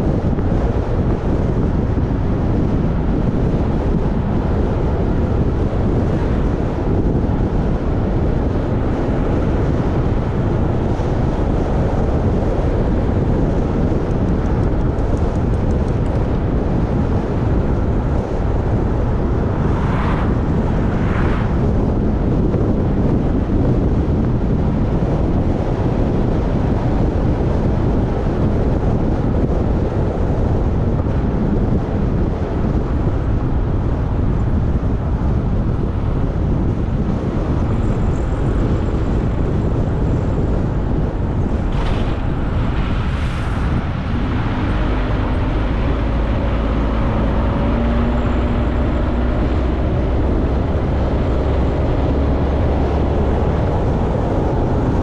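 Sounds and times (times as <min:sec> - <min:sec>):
steady engine hum: 0:00.0 - 0:55.0
vehicle road rumble: 0:00.0 - 0:55.0
wind buffeting microphone: 0:00.0 - 0:55.0
brief whooshes: 0:41.7 - 0:45.1.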